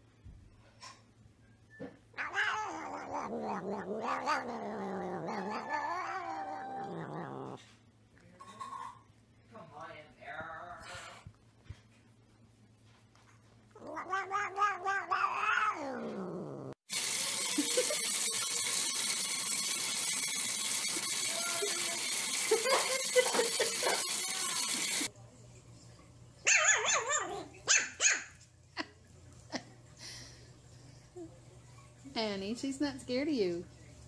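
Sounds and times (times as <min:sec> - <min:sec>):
cat meowing: 0:02.2 - 0:07.6, 0:13.8 - 0:16.8
small dog crying: 0:02.2 - 0:07.6, 0:26.5 - 0:28.2
faucet running into sink: 0:16.9 - 0:25.1
puppy yipping: 0:26.5 - 0:28.4.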